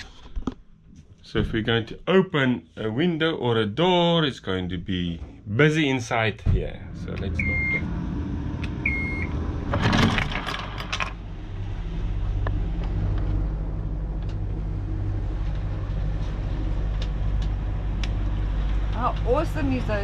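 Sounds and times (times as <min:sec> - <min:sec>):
diesel engine starting and idling: 0:04.9 - 0:20.0
control panel beep: 0:07.4 - 0:07.8, 0:08.8 - 0:09.3.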